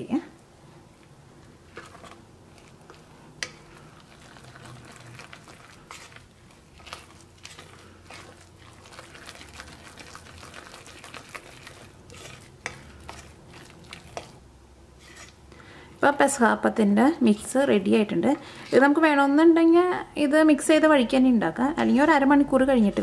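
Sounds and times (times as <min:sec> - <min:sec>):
spoon stirring thick batter: 0:01.4 - 0:16.0.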